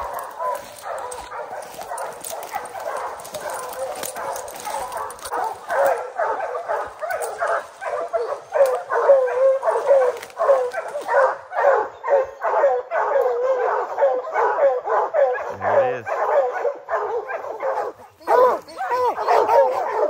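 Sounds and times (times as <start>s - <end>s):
hounds barking rapidly: 0.0s - 20.0s.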